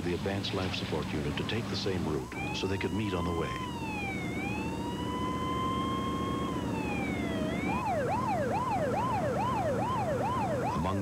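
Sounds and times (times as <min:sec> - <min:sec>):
ambulance siren wailing and yelping: 0:01.1 - 0:11.0.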